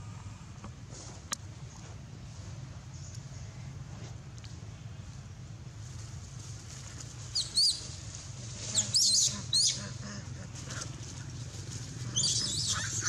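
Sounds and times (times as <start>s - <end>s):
monkey squealing: 12.2s - 13.0s.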